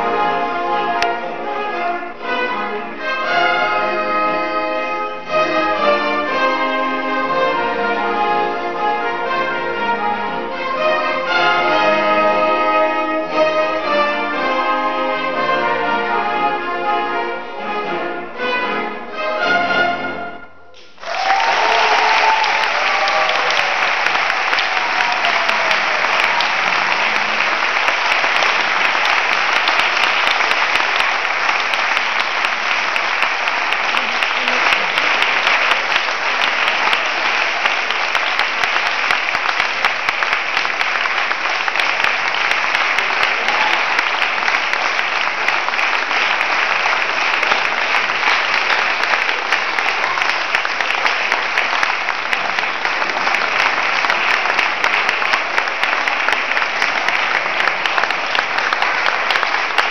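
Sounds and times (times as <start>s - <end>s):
audience applauding: 20.8s - 59.9s.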